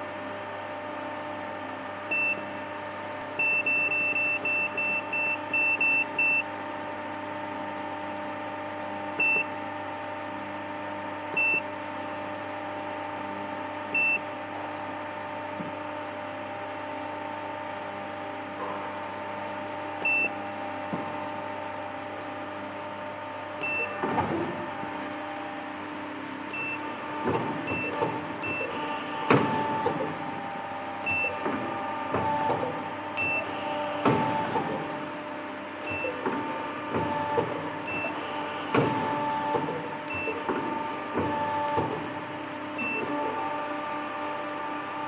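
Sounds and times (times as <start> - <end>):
motor humming: 0.0 - 45.0
mechanical clunks: 23.6 - 24.8, 26.6 - 30.4, 31.1 - 35.0, 35.8 - 43.4.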